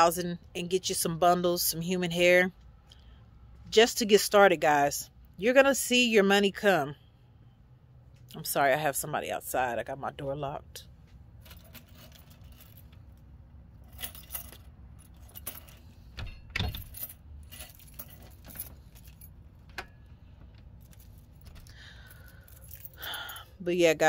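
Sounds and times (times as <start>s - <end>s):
low steady hum: 0.0s - 24.0s
keys jangling: 11.4s - 23.6s.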